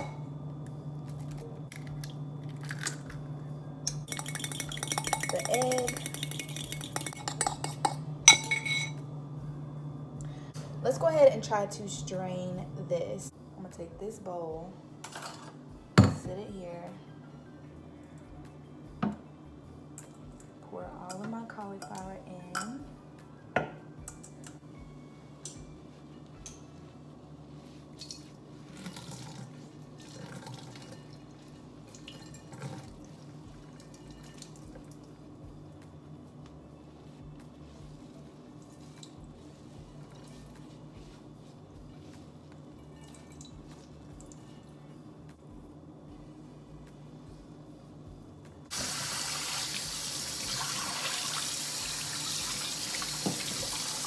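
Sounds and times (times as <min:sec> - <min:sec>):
water running into metal sink: 0:48.7 - 0:54.0.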